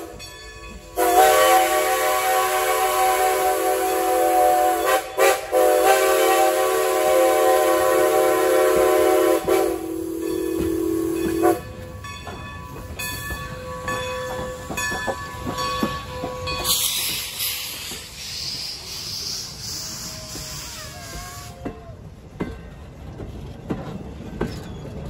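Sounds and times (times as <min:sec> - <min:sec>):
passing train knocks: 0:00.0 - 0:18.9
steam locomotive whistle: 0:00.9 - 0:11.6, 0:18.2 - 0:21.7.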